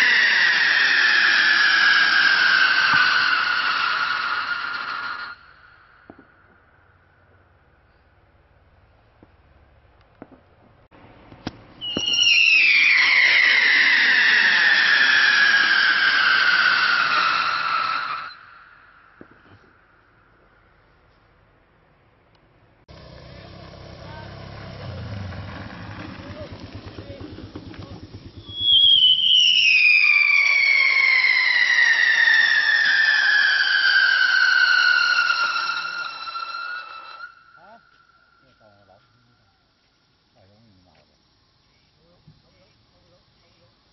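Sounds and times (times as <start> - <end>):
firework whistle falling in pitch: 0.0 - 6.6, 11.8 - 19.4, 28.4 - 38.9
firework pops: 0.6 - 5.3, 6.0 - 6.7, 10.0 - 18.4, 19.1 - 19.8, 25.1 - 37.3.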